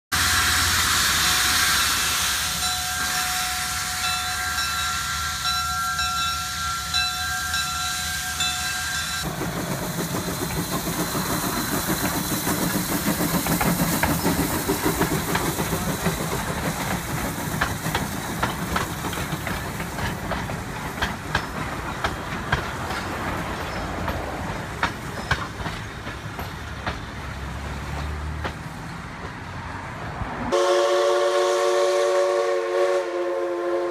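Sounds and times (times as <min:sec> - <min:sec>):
steam hissing: 0:00.1 - 0:27.5
steam whistle: 0:00.2 - 0:09.2, 0:30.5 - 0:33.9
train wheels clicking on rails: 0:00.2 - 0:30.3.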